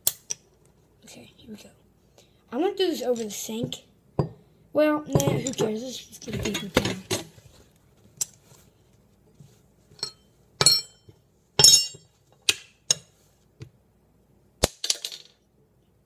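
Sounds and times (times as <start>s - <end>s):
metal spoons clinking on stone: 10.0s - 12.0s.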